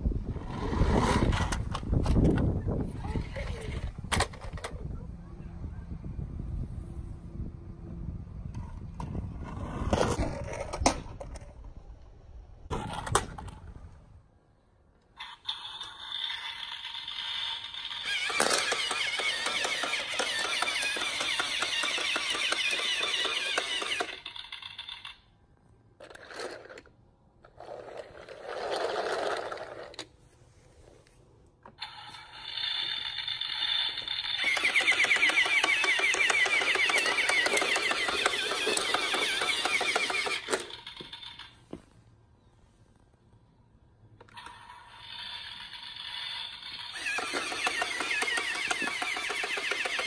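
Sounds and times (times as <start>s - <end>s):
plastic gears clicking: 15.2s - 25.3s, 31.8s - 41.6s, 44.2s - 50.0s
toy motor whining: 15.2s - 25.3s, 31.8s - 41.6s, 44.3s - 50.0s.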